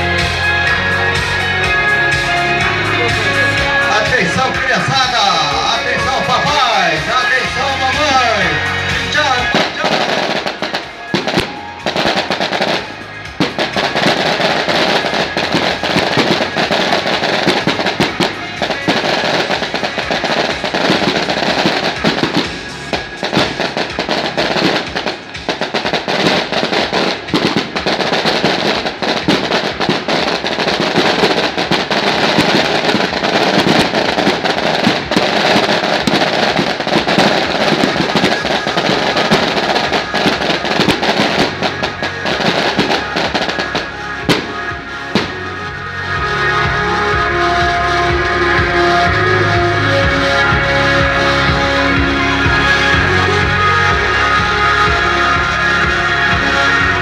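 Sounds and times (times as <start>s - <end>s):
firecrackers crackling: 0.0s - 57.0s.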